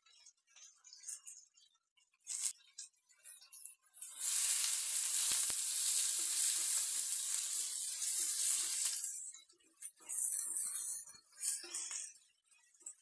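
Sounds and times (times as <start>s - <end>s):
onions sizzling in hot oil: 4.0s - 9.3s, 10.0s - 12.2s.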